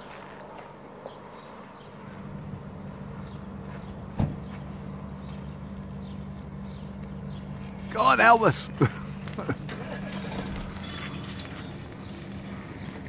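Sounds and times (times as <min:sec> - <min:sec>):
tricycle engine running: 0:05.0 - 0:13.0.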